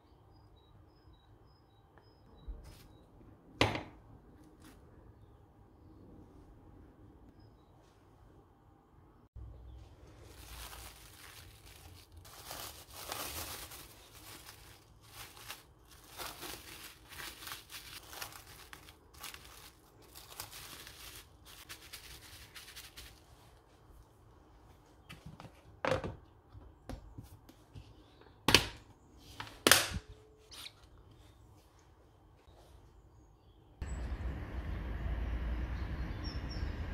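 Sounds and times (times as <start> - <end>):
cling film crinkling: 10.0 - 23.3.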